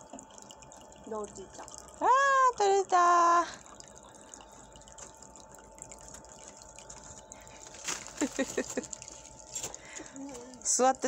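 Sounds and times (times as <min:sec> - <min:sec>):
faint steady tone: 0:00.0 - 0:11.0
water trickling through plastic slide: 0:00.0 - 0:11.0.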